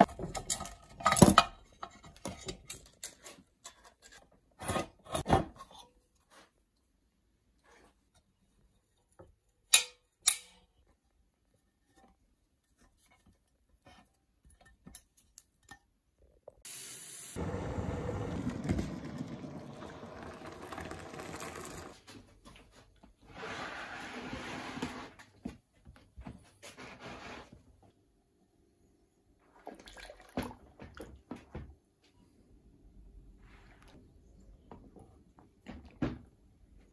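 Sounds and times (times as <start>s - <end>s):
water pouring into a tub: 18.8s - 22.0s, 29.6s - 30.6s
splashing and sloshing water: 29.5s - 31.3s.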